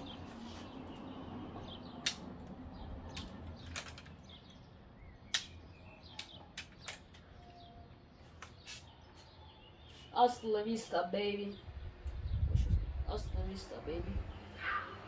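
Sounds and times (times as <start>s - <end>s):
plastic toy gun clicks: 5.3s - 5.6s.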